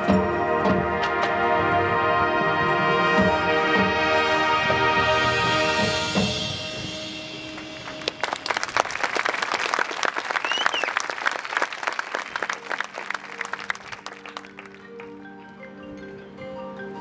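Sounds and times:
marching band brass chord: 0:00.0 - 0:08.1
crowd applauding: 0:07.6 - 0:15.2
short whistle: 0:10.4 - 0:11.0.

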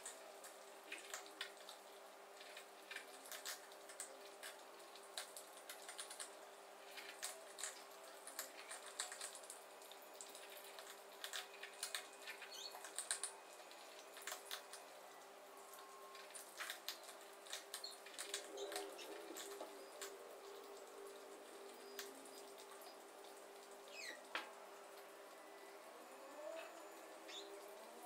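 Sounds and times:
faint steady hum: 0:00.0 - 0:28.0
cats crunching food in bowls: 0:00.9 - 0:14.8, 0:15.8 - 0:20.8.

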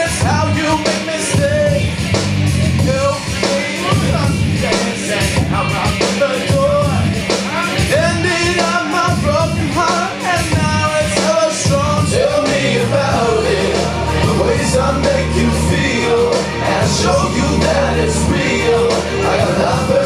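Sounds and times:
man singing into microphone: 0:00.0 - 0:01.9, 0:02.8 - 0:20.0
backing accompaniment: 0:07.5 - 0:20.0.

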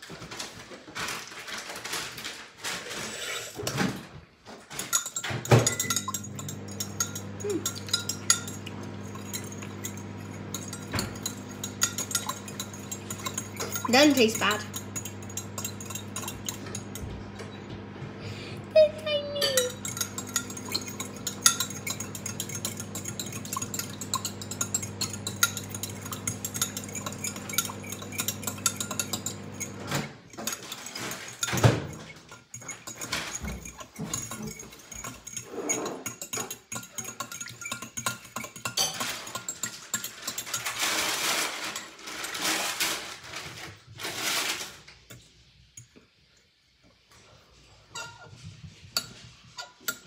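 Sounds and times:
metal spoon clinking in glass: 0:04.8 - 0:17.1, 0:19.4 - 0:40.8.

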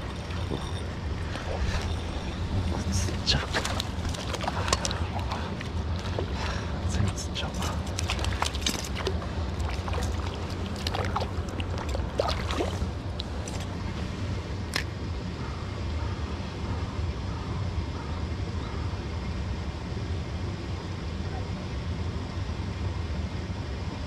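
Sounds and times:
river stream rushing: 0:00.0 - 0:13.8.

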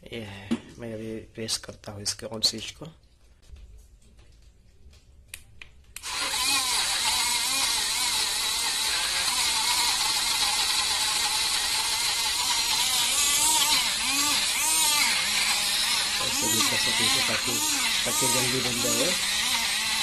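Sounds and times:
blender motor whirring: 0:06.0 - 0:20.0.

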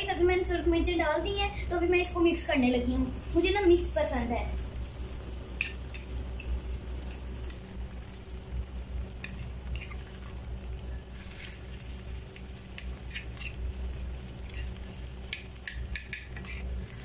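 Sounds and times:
steady low hum: 0:00.0 - 0:17.0
egg sizzling in frying pan: 0:03.1 - 0:17.0
utensil scraping and tapping pan: 0:15.3 - 0:16.7.

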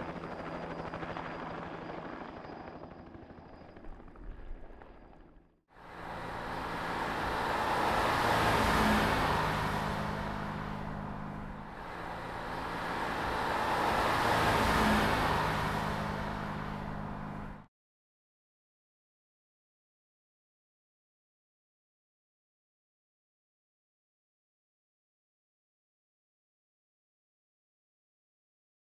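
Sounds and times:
helicopter rotor noise: 0:00.0 - 0:17.6
car driving past: 0:05.9 - 0:17.7.

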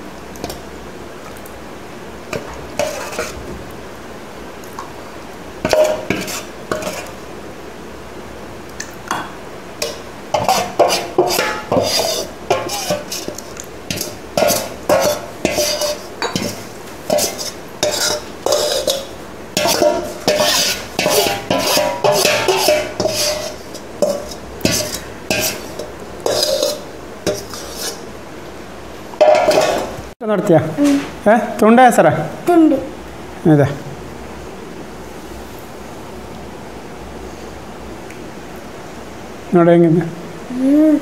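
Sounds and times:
metal spoon scraping a steel bowl: 0:02.8 - 0:03.4, 0:05.7 - 0:07.1, 0:09.8 - 0:28.0, 0:29.2 - 0:29.9.

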